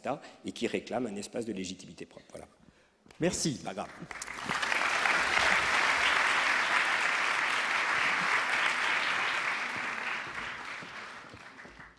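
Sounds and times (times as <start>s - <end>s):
audience applauding: 3.8s - 11.9s.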